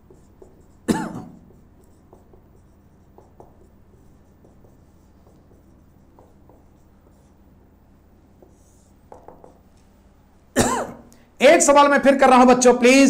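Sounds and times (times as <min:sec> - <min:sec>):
marker squeaking on whiteboard: 0:00.0 - 0:09.8.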